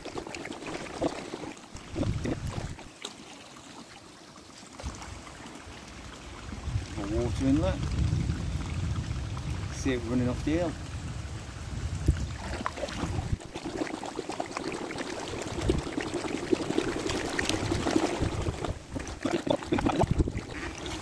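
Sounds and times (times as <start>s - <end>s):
water pouring and splashing: 0.0s - 21.0s
water drips: 11.9s - 21.0s.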